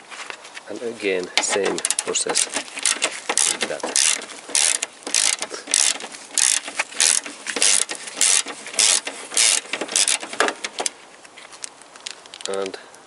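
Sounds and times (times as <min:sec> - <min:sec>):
ratchet wrench clicking: 0:01.4 - 0:10.9.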